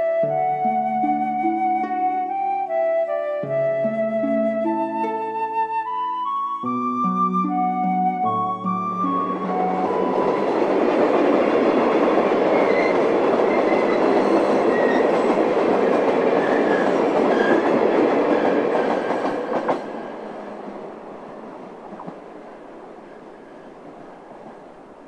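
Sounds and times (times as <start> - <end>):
freight train wheels on rails: 9.1 - 25.0.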